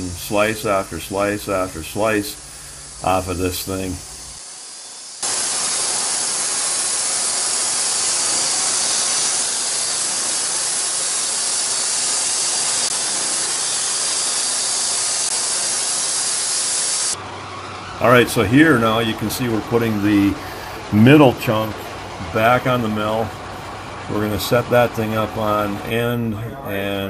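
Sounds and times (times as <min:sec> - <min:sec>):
bandsaw blade cutting wood: 0:04.4 - 0:26.0.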